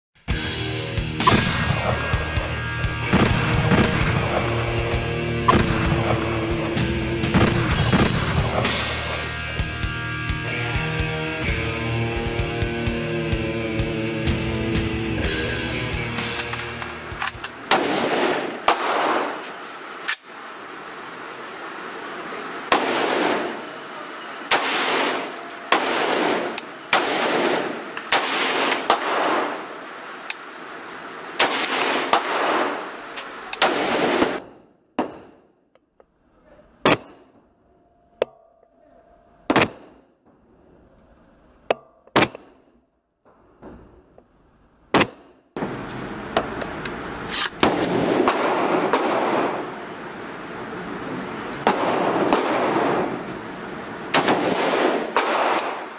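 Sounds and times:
rifle shots echoing indoors: 0:17.7 - 0:19.4, 0:22.7 - 0:23.7, 0:24.5 - 0:29.9, 0:31.4 - 0:33.0, 0:33.6 - 0:35.6, 0:47.3 - 0:49.8, 0:51.6 - 0:53.3, 0:54.1 - 0:55.9.

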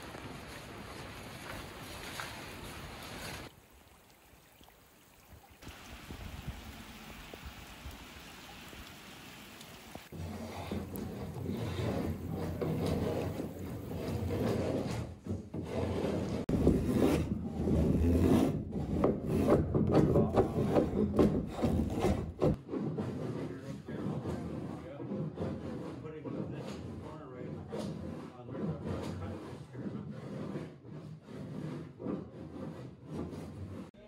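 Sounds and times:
soft rain hiss: 0:00.0 - 0:13.7
drawknife shaving wood: 0:10.1 - 0:19.7.

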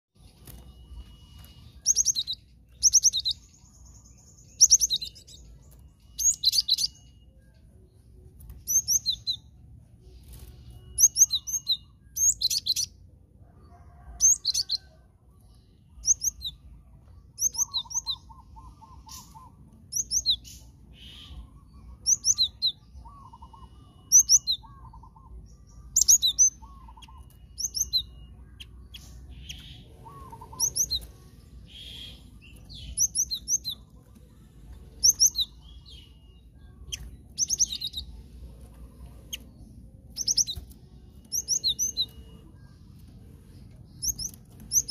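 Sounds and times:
bird singing high whistled notes: 0:00.2 - 0:07.7, 0:10.2 - 0:13.0, 0:15.7 - 0:33.9, 0:39.0 - 0:42.7.

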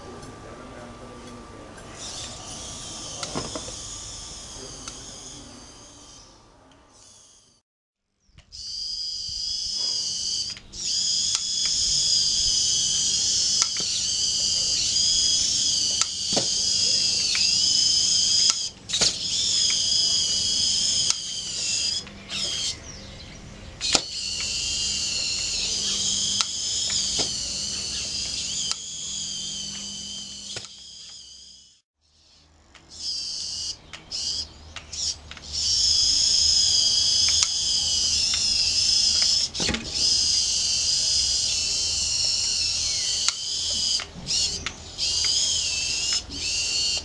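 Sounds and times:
electric motors whining: 0:00.0 - 0:07.6, 0:08.6 - 0:47.0
sharp clicks: 0:09.8 - 0:22.8, 0:23.8 - 0:31.3, 0:33.9 - 0:47.0.

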